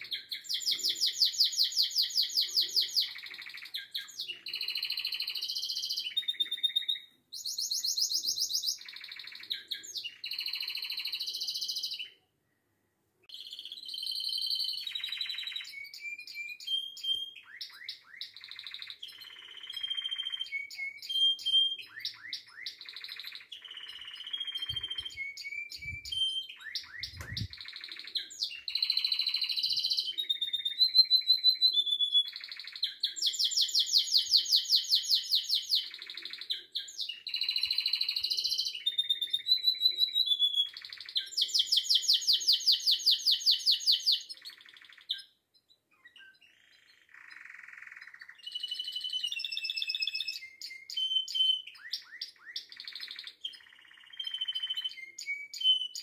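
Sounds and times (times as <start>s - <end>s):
canary singing: 0.0s - 12.3s, 13.3s - 56.0s
soft low thumps: 27.0s - 27.5s.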